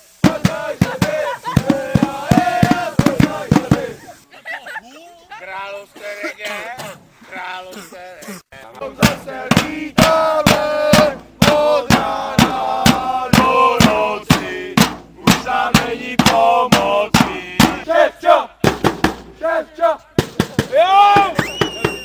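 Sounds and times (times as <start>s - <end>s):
crowd chanting: 0.0s - 4.1s, 8.7s - 18.7s, 19.3s - 20.2s
drums beaten with sticks: 0.1s - 4.0s, 8.8s - 18.0s, 18.6s - 22.0s.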